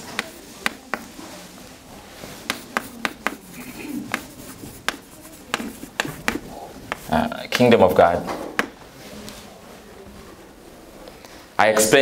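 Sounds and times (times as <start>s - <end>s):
chalk tapping and scratching: 0.0s - 1.6s, 2.2s - 7.4s, 8.3s - 8.8s.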